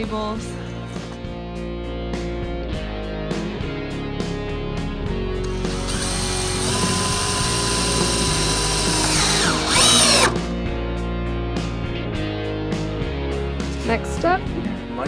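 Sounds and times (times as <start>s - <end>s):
cordless drill driving screw: 5.4s - 10.4s.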